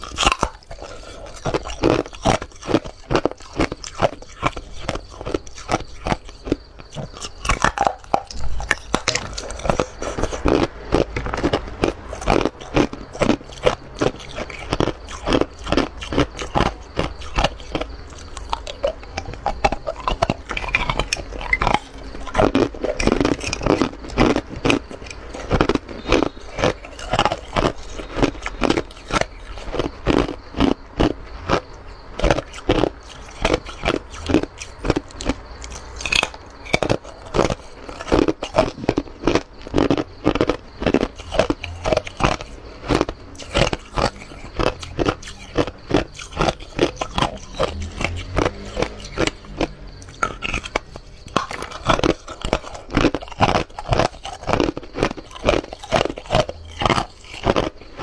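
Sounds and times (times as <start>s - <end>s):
ice crunching being chewed: 0.0s - 58.0s.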